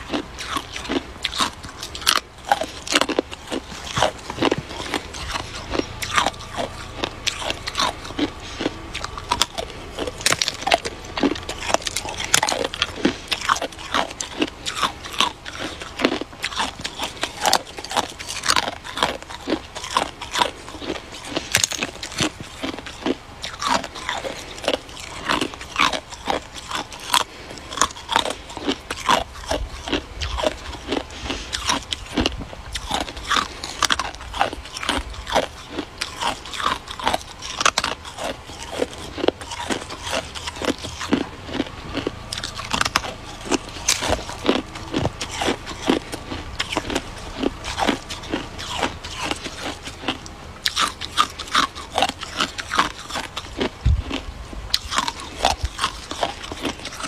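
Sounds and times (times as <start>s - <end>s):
ice being chewed: 0.0s - 57.0s.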